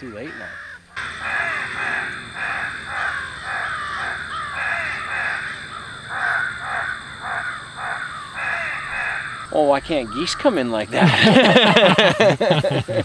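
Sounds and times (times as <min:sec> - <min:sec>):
crows cawing: 0:00.0 - 0:12.2.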